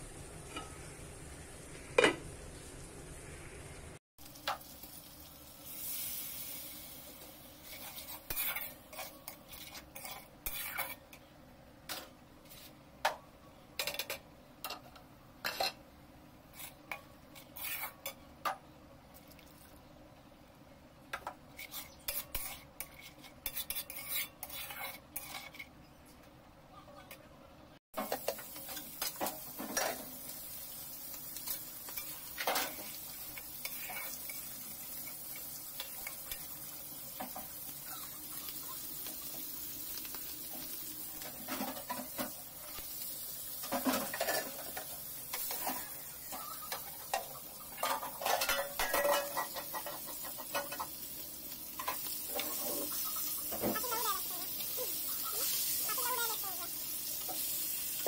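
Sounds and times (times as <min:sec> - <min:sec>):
fish sizzling in oil: 0:00.0 - 0:11.2, 0:28.0 - 0:58.0
metal spatula scraping: 0:07.5 - 0:11.3, 0:15.4 - 0:15.8, 0:16.5 - 0:18.2, 0:21.5 - 0:26.0, 0:31.4 - 0:39.3, 0:43.6 - 0:51.1, 0:51.8 - 0:56.4
utensils clinking on metal pot: 0:43.6 - 0:50.9.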